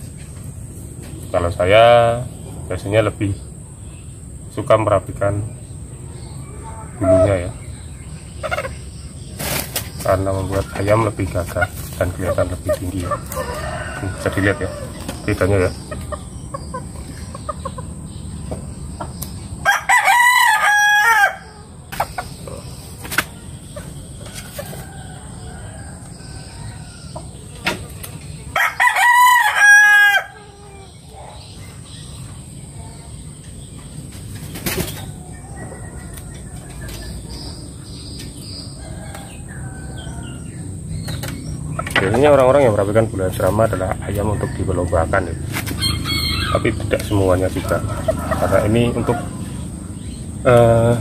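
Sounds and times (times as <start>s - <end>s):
rooster crowing: 6.4s - 7.6s, 13.0s - 15.9s, 19.6s - 21.8s, 24.5s - 27.5s, 28.5s - 31.0s, 38.6s - 40.8s, 44.0s - 50.0s.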